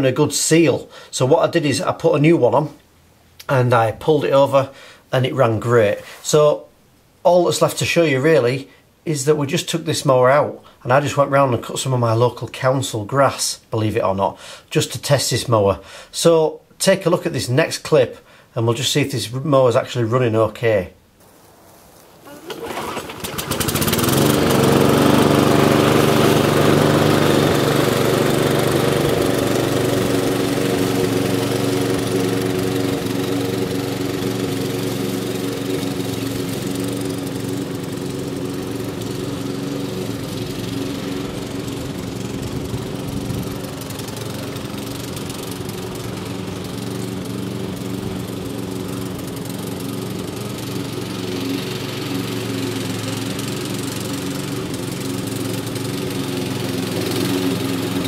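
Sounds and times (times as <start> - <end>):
lawnmower engine running: 21.2 - 58.0.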